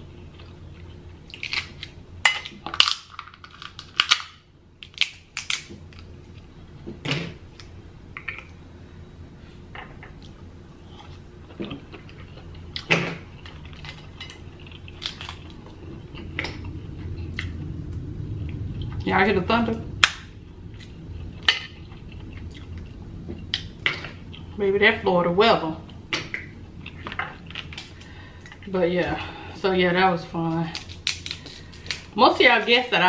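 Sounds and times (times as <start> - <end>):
crab shells cracking: 1.3 - 6.1, 12.8 - 15.6, 30.8 - 32.1
thunder rumble: 14.9 - 30.3.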